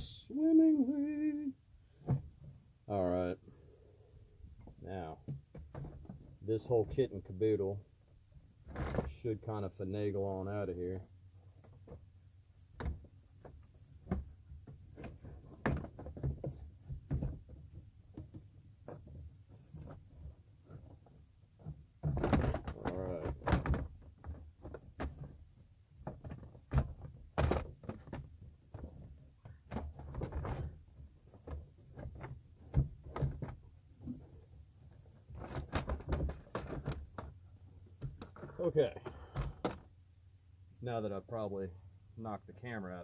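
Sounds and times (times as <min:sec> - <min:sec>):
plastic knocks and clunks: 0:02.0 - 0:02.6, 0:04.6 - 0:07.0, 0:12.7 - 0:25.4, 0:26.0 - 0:34.4, 0:35.0 - 0:39.9.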